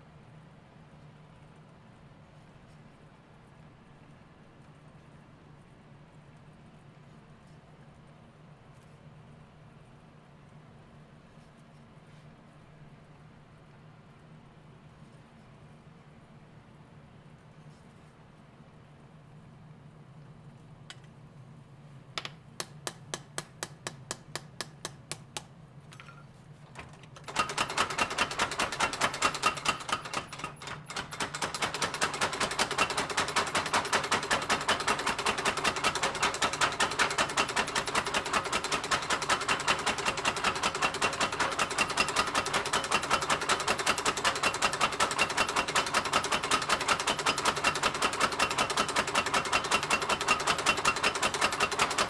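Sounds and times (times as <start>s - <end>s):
hand hammer striking steel on anvil: 22.2s - 26.2s
power hammer pounding: 27.3s - 52.0s.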